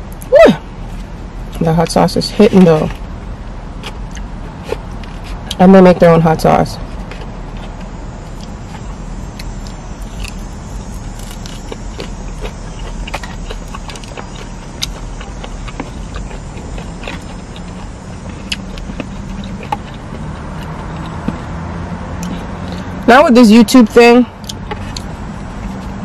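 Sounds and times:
low vehicle rumble: 0:00.0 - 0:26.0
chewing crispy food: 0:07.0 - 0:23.0.

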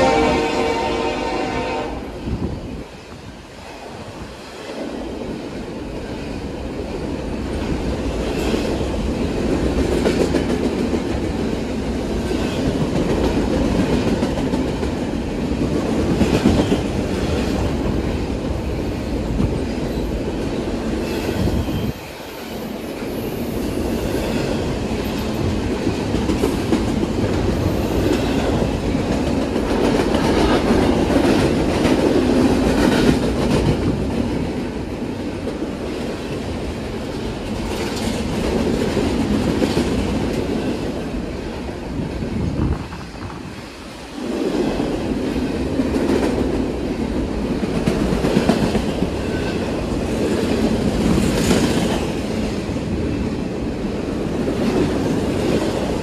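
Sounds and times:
freight train wheels rumbling on rail: 0:00.0 - 0:56.0.

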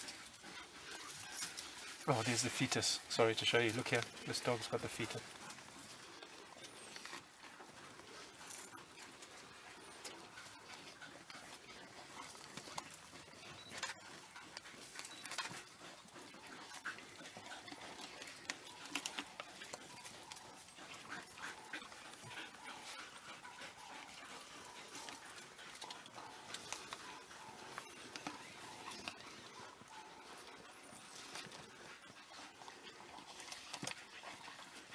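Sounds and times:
dogs tearing and chewing meat: 0:00.0 - 0:34.9.

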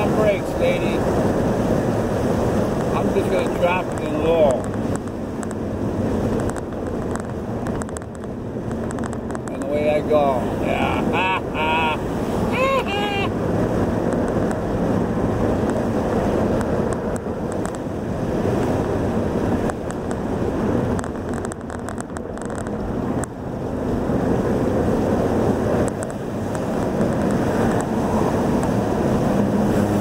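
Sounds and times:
road and wind noise: 0:00.0 - 0:30.0.

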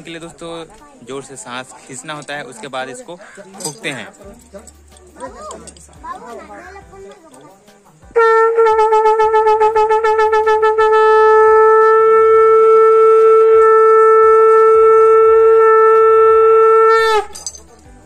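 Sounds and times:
brass horn long note: 0:08.2 - 0:17.3.

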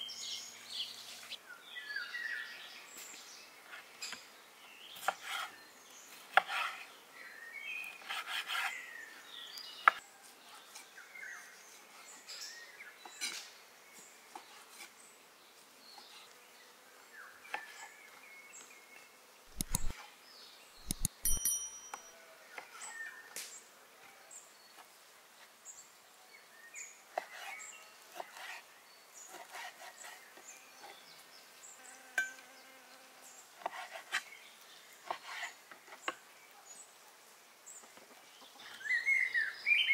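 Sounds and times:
insects buzzing: 0:15.0 - 0:20.0, 0:30.1 - 0:34.2.

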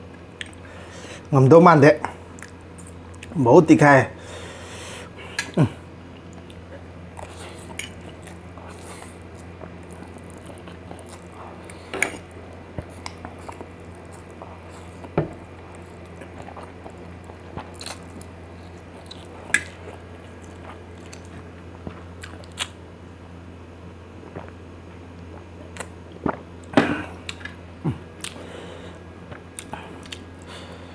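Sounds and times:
person chewing: 0:00.4 - 0:00.7, 0:05.1 - 0:22.8, 0:25.2 - 0:30.9.

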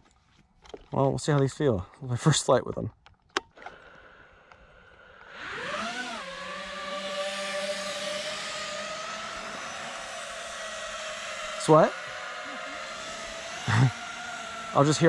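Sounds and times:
drone motors whining: 0:03.6 - 0:15.0.

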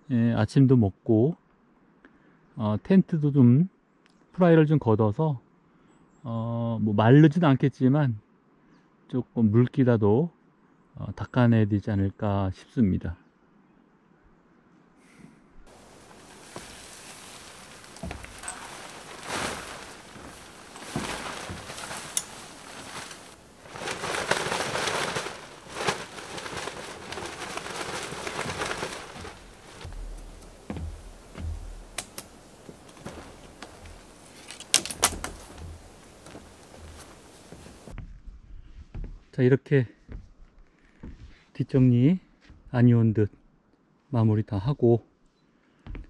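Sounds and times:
nylon tent fabric rustling: 0:15.7 - 0:38.0
dull low thumps: 0:17.8 - 0:34.4, 0:35.0 - 0:39.4.

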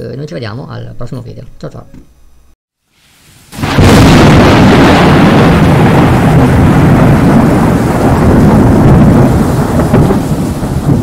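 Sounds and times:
rain hiss: 0:02.8 - 0:11.0
rolling thunder: 0:03.5 - 0:11.0.

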